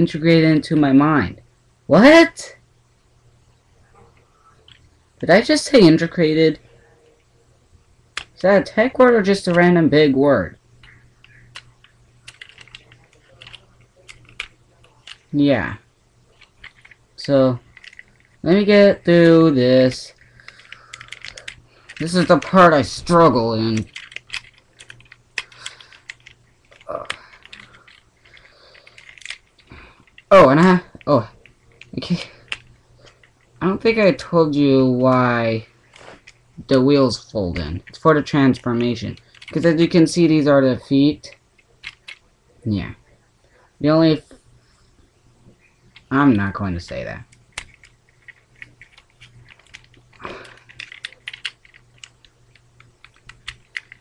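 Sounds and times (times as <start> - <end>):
plastic parts clicking and snapping: 10.8 - 15.3, 16.4 - 18.4, 20.2 - 30.3, 30.9 - 33.4, 38.6 - 39.8, 41.3 - 42.2, 46.9 - 54.0.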